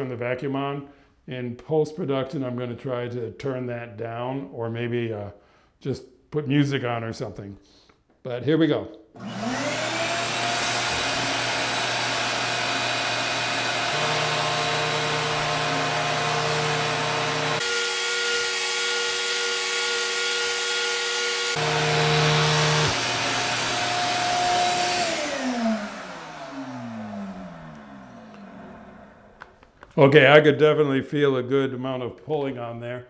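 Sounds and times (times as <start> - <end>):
vacuum winding down whine: 9.2 - 29.6
vacuum cleaner humming: 9.2 - 29.8.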